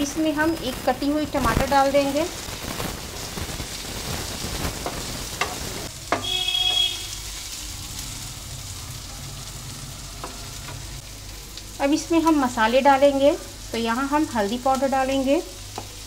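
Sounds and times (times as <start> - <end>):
vegetables sizzling in oil: 0.0 - 16.0
wooden spatula knocking pan: 4.8 - 6.9.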